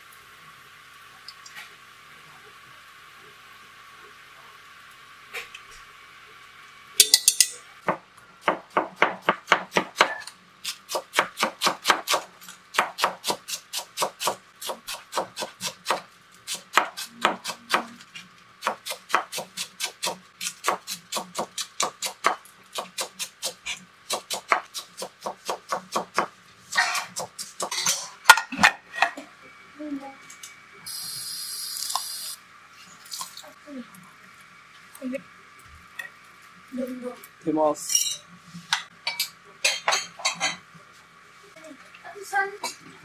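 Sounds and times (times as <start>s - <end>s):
knife chopping cabbage on board: 7.9s - 17.9s, 18.6s - 26.3s.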